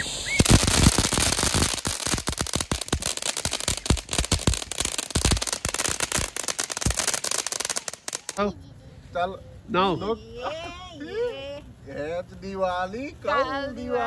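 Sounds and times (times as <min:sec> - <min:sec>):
firework crackling pops: 0:00.0 - 0:08.4.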